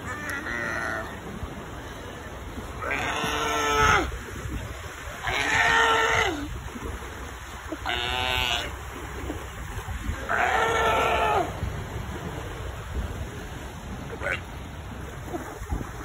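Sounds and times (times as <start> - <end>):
sea lions calling: 0.0 - 1.3, 2.7 - 4.4, 5.1 - 6.6, 7.6 - 8.8, 10.1 - 11.6
surf washing: 0.0 - 16.0.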